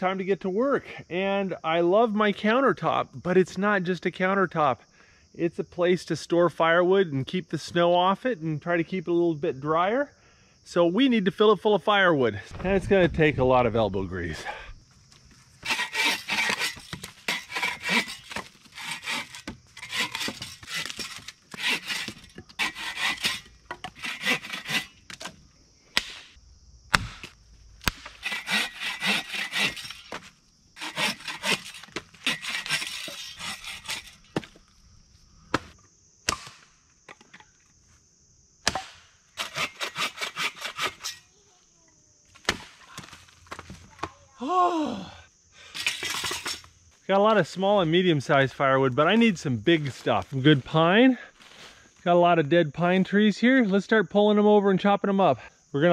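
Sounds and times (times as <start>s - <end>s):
bow saw cutting branches: 15.6s - 25.4s, 27.0s - 34.6s, 38.9s - 41.2s.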